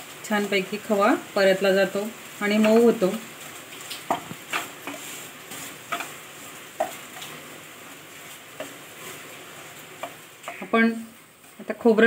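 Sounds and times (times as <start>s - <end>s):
ghee sizzling: 0.0s - 12.0s
wooden spatula scraping pan: 2.5s - 11.8s.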